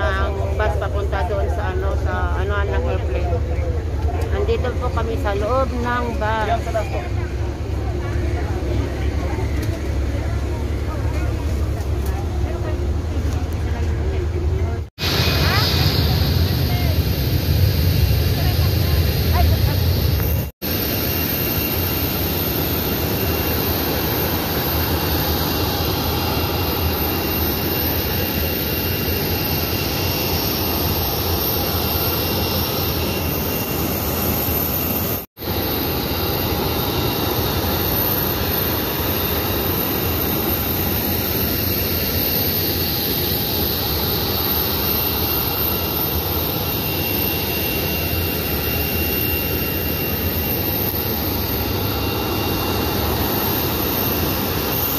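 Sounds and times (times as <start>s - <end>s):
aircraft engines roaring: 0.0s - 54.9s
faint high whine: 15.0s - 54.9s.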